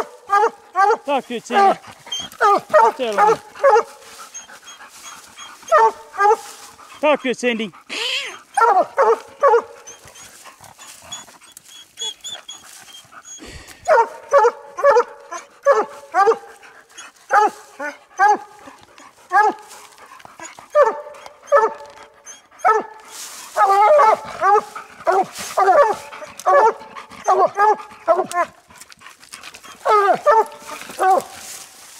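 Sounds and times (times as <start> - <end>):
dogs barking: 0.0 - 7.2, 8.2 - 10.2, 13.8 - 19.8, 20.4 - 28.7, 29.7 - 31.4.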